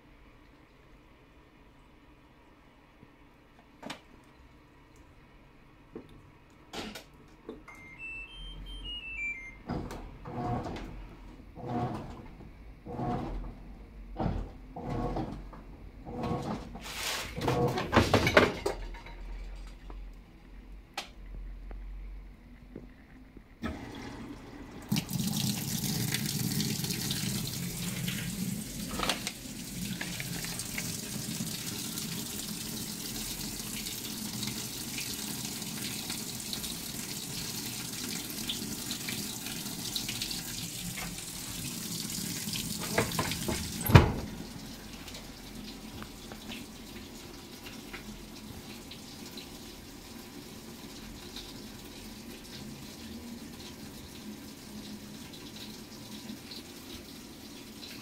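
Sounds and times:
water pouring into washing machine: 0:23.6 - 0:58.0
washing machine lid shutting: 0:42.8 - 0:44.4.

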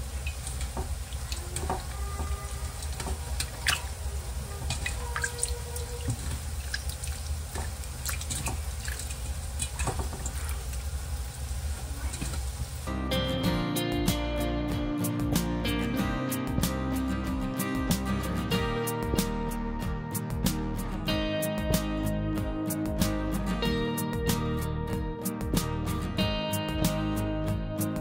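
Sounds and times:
water splashing and dripping: 0:00.0 - 0:12.9.

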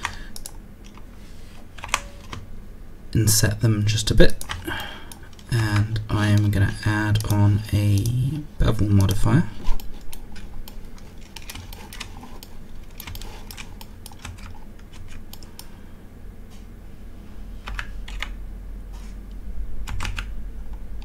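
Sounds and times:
computer keyboard keystrokes: 0:00.0 - 0:01.0, 0:01.8 - 0:02.4, 0:04.4 - 0:06.5, 0:10.0 - 0:15.7, 0:17.7 - 0:18.4, 0:19.9 - 0:20.3
low steady hum: 0:00.0 - 0:21.0.

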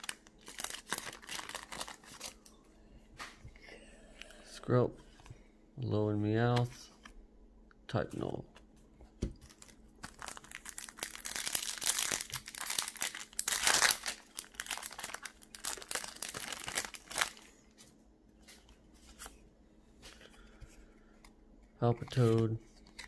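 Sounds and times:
cards rustling: 0:00.0 - 0:02.5, 0:09.3 - 0:19.4, 0:20.0 - 0:23.0
foil wrapper crinkling and tearing: 0:00.0 - 0:02.5, 0:09.4 - 0:17.6.

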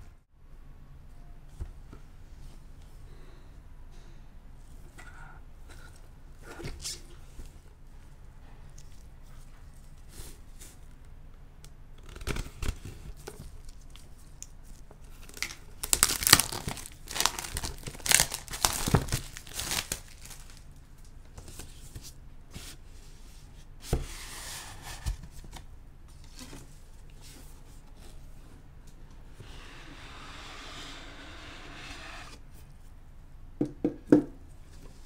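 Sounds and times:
plastic wrap tearing and crinkling: 0:15.2 - 0:20.8.

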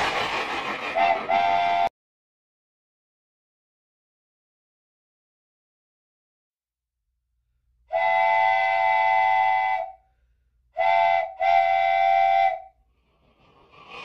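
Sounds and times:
electronic toy train horn: 0:01.0 - 0:01.9, 0:07.9 - 0:10.0, 0:10.8 - 0:12.7.

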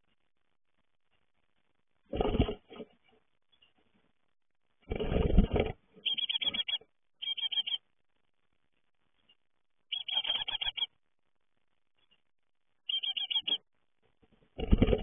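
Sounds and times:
nestlings chirping: 0:05.5 - 0:11.1, 0:11.8 - 0:13.7.

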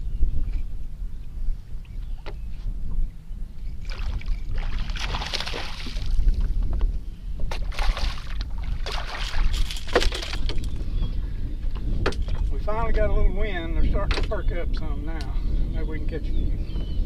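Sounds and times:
wind rumble on microphone: 0:00.0 - 0:17.0
fish splashing in water: 0:03.8 - 0:06.2, 0:07.5 - 0:10.4.

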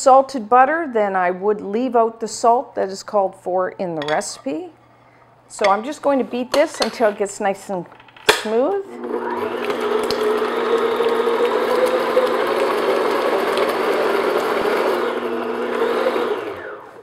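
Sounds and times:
stand mixer motor running: 0:08.9 - 0:17.0.

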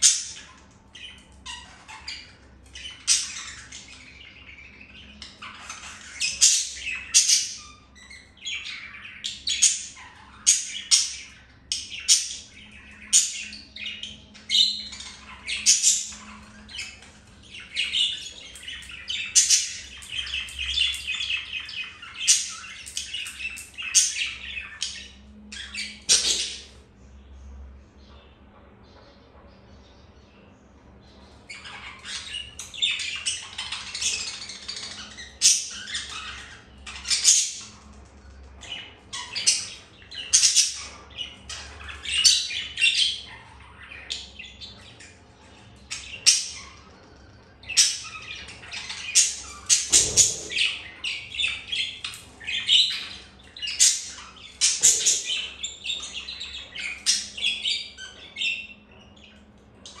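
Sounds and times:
budgerigars chirping and squawking: 0:00.0 - 1:00.0.

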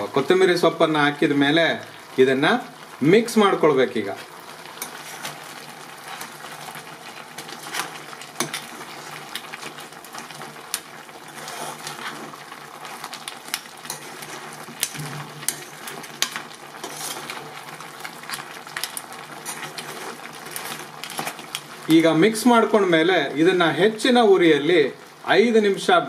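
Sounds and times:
frying sizzle: 0:00.0 - 0:26.0
metal spatula scraping pan: 0:04.8 - 0:05.4, 0:07.4 - 0:09.0, 0:10.7 - 0:12.4, 0:13.8 - 0:17.6, 0:18.9 - 0:21.6.

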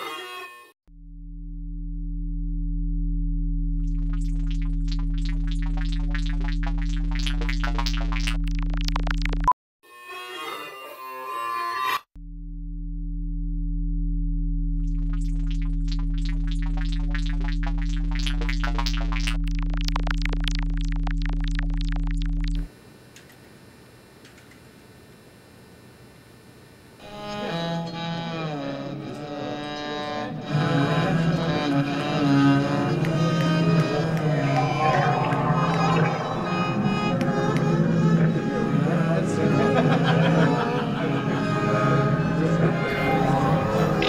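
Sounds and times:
low synthesized drone: 0:00.9 - 0:09.5, 0:12.2 - 0:22.7, 0:30.2 - 0:44.0
high chirping tones: 0:04.1 - 0:09.5, 0:15.1 - 0:22.7.

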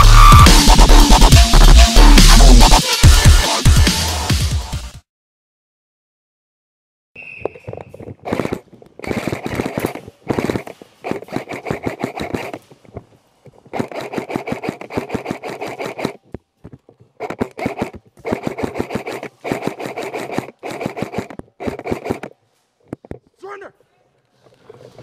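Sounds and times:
airsoft rifle automatic bursts: 0:13.7 - 0:16.2, 0:17.2 - 0:22.3.

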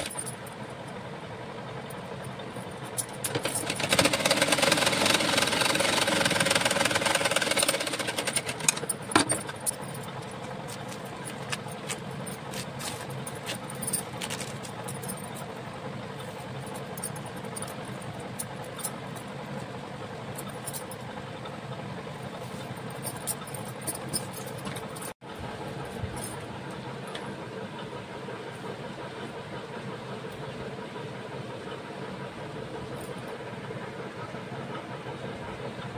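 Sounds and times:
sewing machine stitching: 0:03.2 - 0:09.3.

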